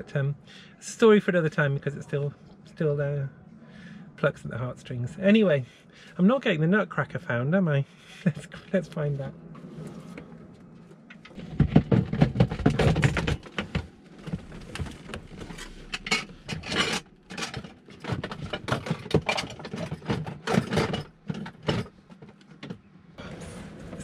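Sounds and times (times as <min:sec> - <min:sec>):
plastic lids clattering and scraping: 0:11.1 - 0:22.8.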